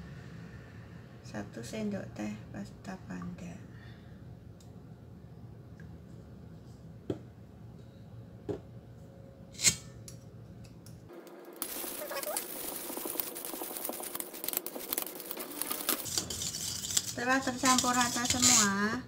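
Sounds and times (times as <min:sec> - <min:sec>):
whisk beating batter in metal bowl: 0:11.6 - 0:19.0.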